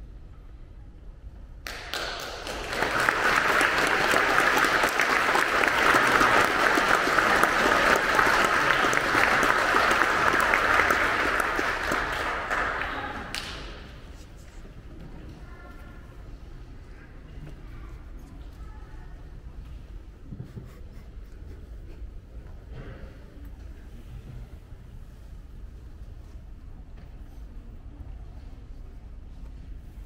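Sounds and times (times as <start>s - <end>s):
congregation clapping: 1.6s - 14.0s.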